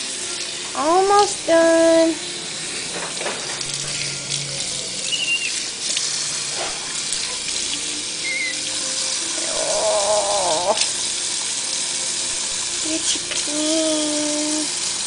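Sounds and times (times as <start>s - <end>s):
tap water running into sink: 0.0s - 15.0s
wavering pitched call: 5.0s - 5.7s, 8.2s - 8.8s.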